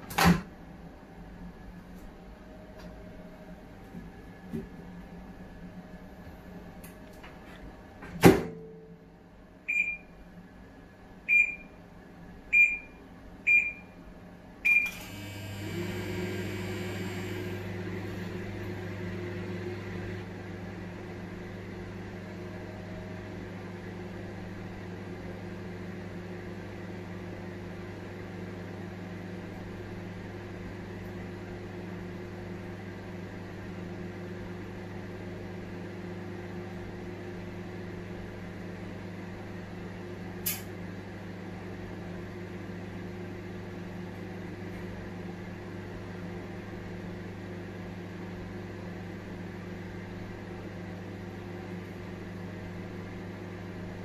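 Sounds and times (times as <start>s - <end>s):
microwave door shutting: 0.0s - 0.5s
microwave hum and fan whir: 0.0s - 54.0s.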